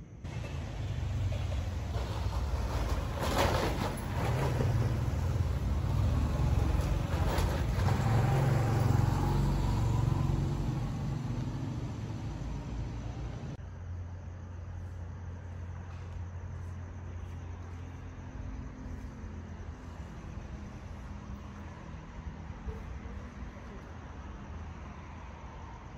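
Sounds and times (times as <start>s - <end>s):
motorbike engine: 0.3s - 13.6s.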